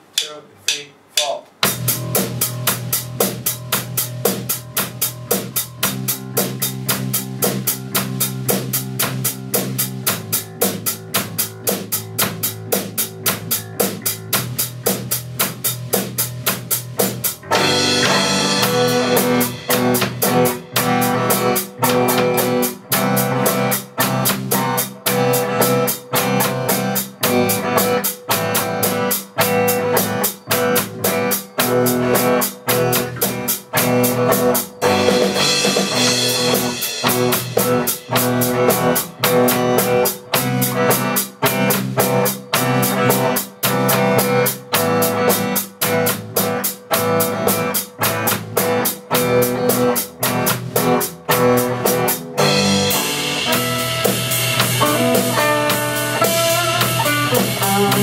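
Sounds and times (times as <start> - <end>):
person counting in: 0.0 - 1.6
band playing: 0.0 - 58.0
drum kit beat: 0.0 - 58.0.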